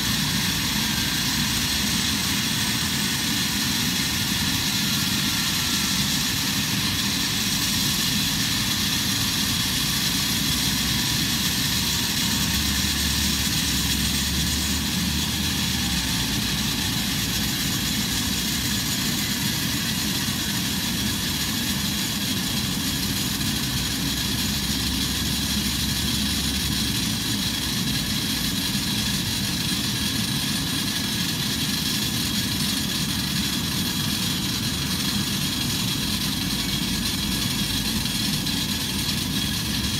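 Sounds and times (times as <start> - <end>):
jet engines idling: 0.0 - 39.9.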